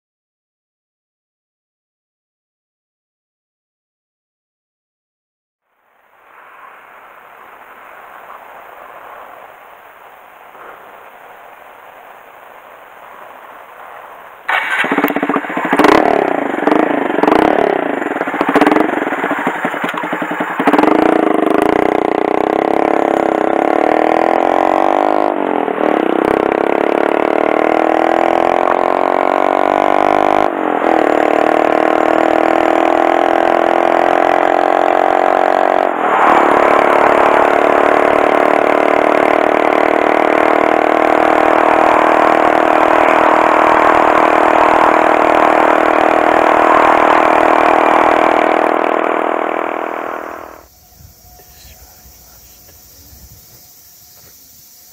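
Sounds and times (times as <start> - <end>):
motorcycle engine revving and accelerating: 14.4 - 54.9.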